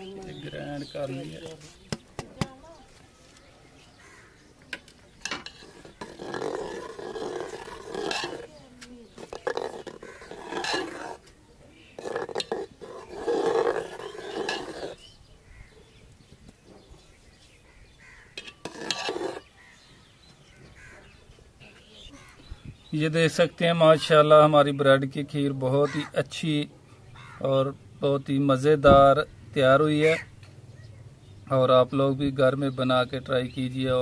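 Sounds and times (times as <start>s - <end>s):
metal ladle scraping a pot: 5.2s - 8.5s, 9.1s - 15.0s, 18.3s - 19.5s.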